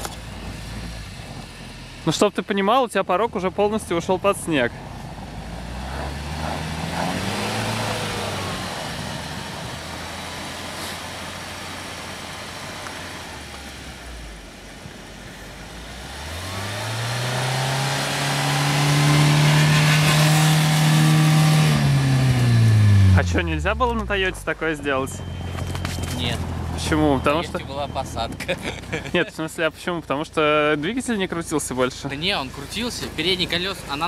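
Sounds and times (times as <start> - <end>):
suv engine revving: 0.0 - 34.0.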